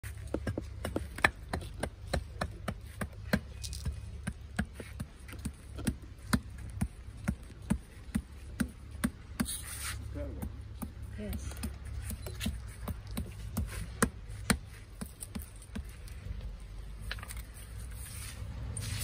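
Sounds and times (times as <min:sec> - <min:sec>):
mallet tapping stones: 0:00.2 - 0:09.5.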